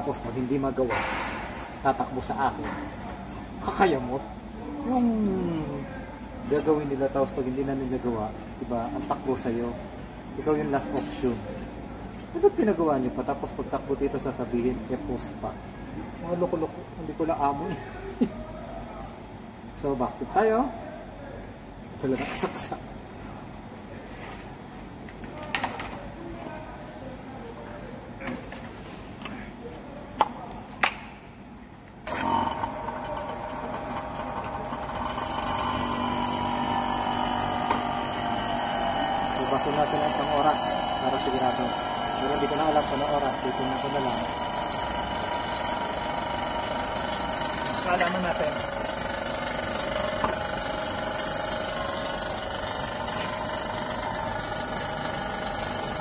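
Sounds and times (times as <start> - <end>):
vacuum pump running: 32.0 - 56.0.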